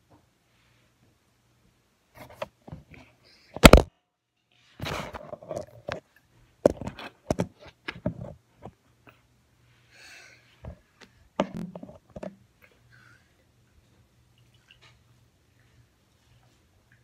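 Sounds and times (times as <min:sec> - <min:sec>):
phone being handled: 0:11.4 - 0:12.4.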